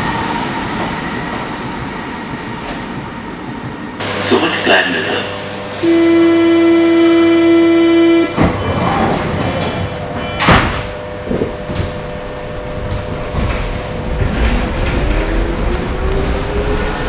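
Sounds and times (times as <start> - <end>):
train car rumbling: 0.0 - 17.0
train rising whine: 0.0 - 17.0
door-closing warning beep: 5.8 - 16.3
sliding doors banging shut: 8.4 - 12.1.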